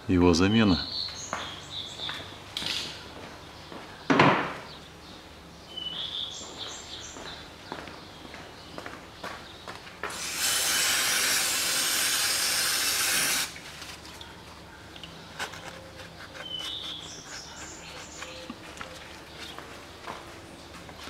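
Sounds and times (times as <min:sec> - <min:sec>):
aerosol spray can hissing: 0:10.1 - 0:13.6
rag rubbing: 0:15.3 - 0:19.6.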